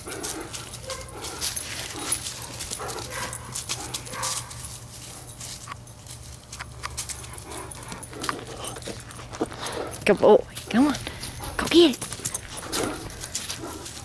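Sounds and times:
dogs vocalizing quietly: 6.9s - 10.1s.

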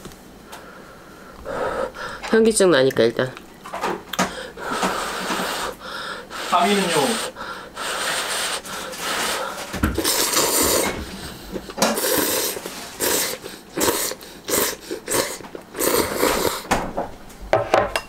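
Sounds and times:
person blowing on food: 4.6s - 11.2s, 11.9s - 16.7s
noodle slurping: 4.6s - 16.7s.

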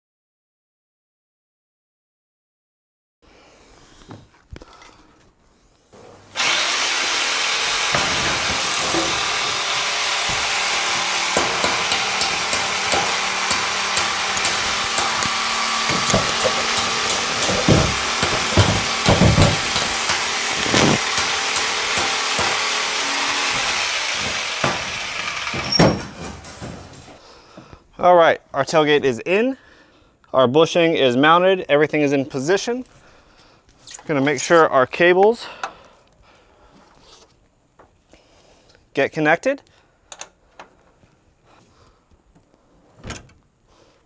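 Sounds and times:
steady mechanical whir: 6.3s - 25.8s
knocks: 7.8s - 22.6s, 23.5s - 26.9s.

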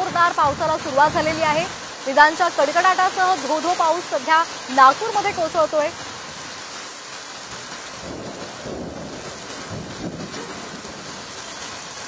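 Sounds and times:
thunder rumbling: 0.0s - 3.7s, 7.5s - 12.0s
heavy rain pouring: 0.0s - 12.0s.

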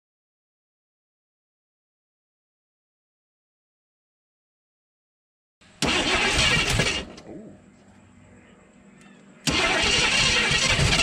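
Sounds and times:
engine cranking: 5.8s - 7.2s, 9.4s - 11.0s.

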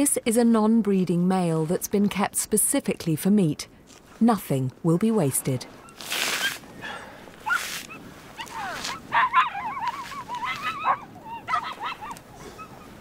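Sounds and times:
scuffs in snow: 5.7s - 6.8s, 7.4s - 11.0s
dog whining and yelping: 6.8s - 13.0s.

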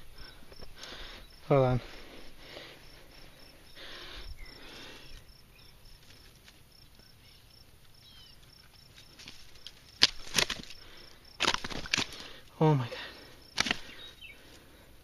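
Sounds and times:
insect chirping: 0.0s - 15.0s
dry grass rustling: 1.8s - 14.8s
sharp crackling snaps: 7.8s - 12.6s, 13.5s - 14.6s.

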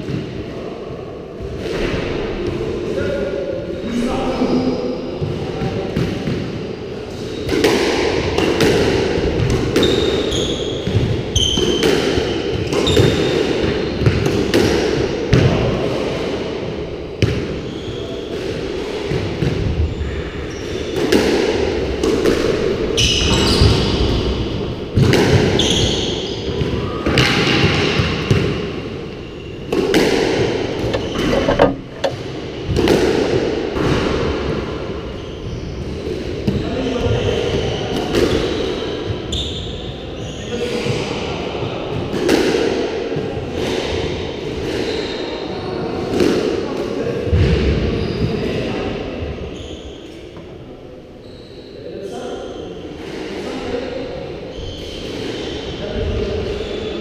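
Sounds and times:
squash ball hitting rackets and walls: 0.0s - 0.4s, 7.4s - 17.6s, 18.3s - 19.9s, 20.6s - 35.0s, 41.9s - 45.0s
sneaker squeaks on wooden floor: 9.8s - 11.9s, 12.6s - 13.4s, 25.5s - 26.6s, 29.1s - 32.3s, 49.5s - 50.2s.

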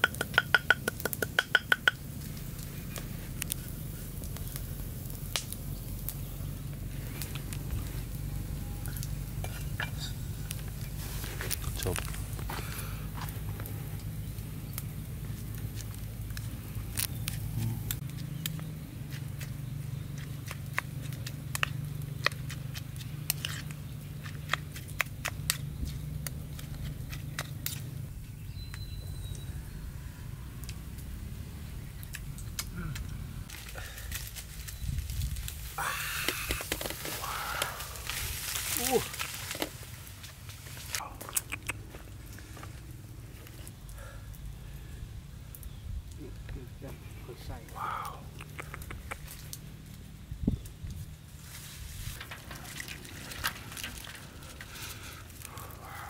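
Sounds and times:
steady low hum: 1.6s - 28.4s.

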